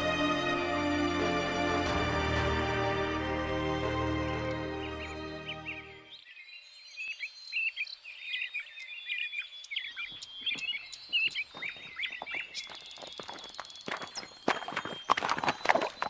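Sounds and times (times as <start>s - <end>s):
small birds chirping: 4.5s - 16.0s
hooves clopping on stones: 10.0s - 16.0s.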